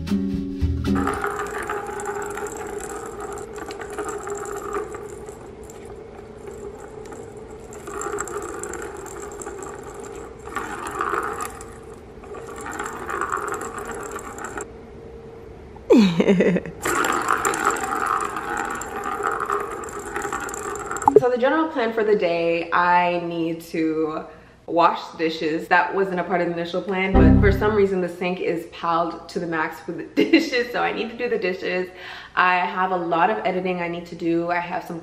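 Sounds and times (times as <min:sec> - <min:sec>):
toy track rattling: 0:01.0 - 0:14.7.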